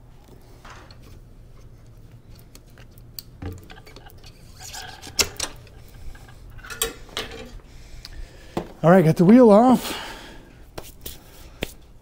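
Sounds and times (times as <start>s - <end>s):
bike wheel clanking: 3.4s - 7.6s.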